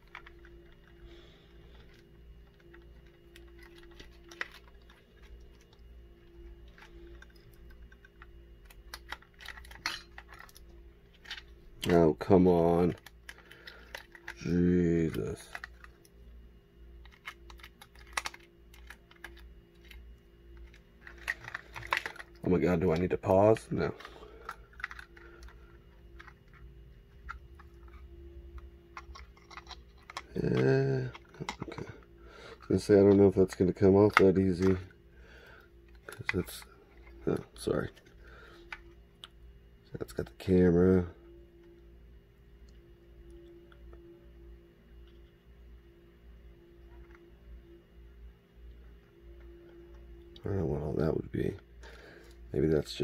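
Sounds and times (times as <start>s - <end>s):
steady low hum: 0.0s - 53.0s
small clicks and scratches: 1.7s - 12.0s, 12.8s - 16.2s, 17.0s - 23.1s, 23.8s - 31.9s.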